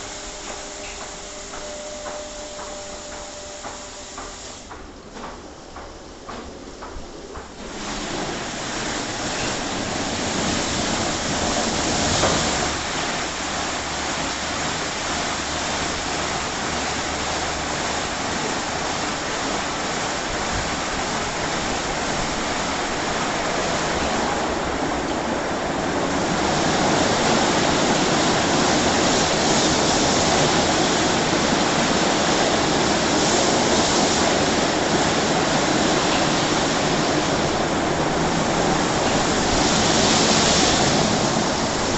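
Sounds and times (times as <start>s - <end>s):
rotating brush machinery: 0.0s - 4.7s
water spray rushing: 0.0s - 4.8s, 7.6s - 41.9s.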